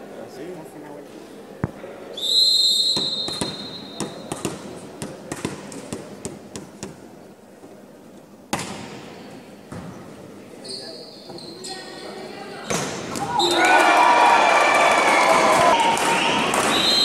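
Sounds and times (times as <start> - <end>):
referee's whistle blast: 2.2 - 4.2, 16.2 - 17.0.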